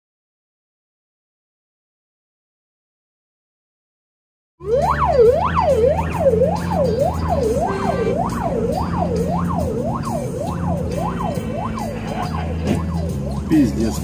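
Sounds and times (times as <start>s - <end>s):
police siren yelping: 4.6s - 14.0s.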